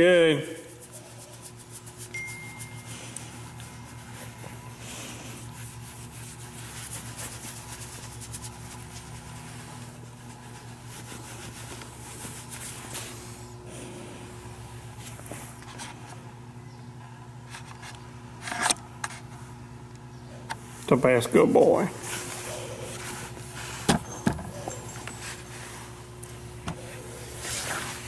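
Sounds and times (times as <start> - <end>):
low hum: 0.5 - 20.9
hand petting dog rustling: 0.7 - 13.4, 21.9 - 28.0.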